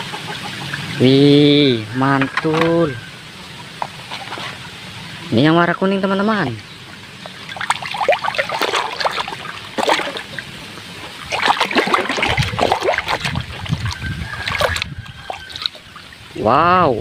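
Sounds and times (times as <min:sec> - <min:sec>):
hand splashing in muddy water: 0:07.6 - 0:10.4, 0:11.2 - 0:15.8.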